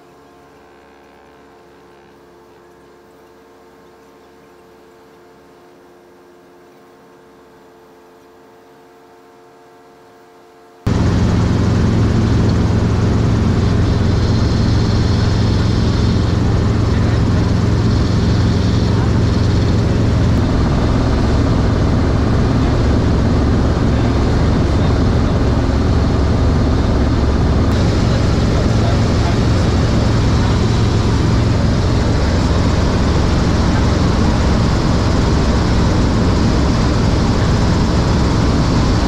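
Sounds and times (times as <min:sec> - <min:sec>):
helicopter engine and rotor: 0:10.9 - 0:39.0.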